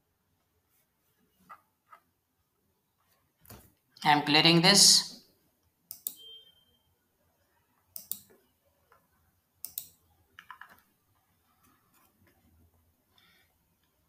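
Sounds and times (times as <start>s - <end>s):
computer mouse clicks: 5.9s - 6.3s, 7.9s - 11.0s.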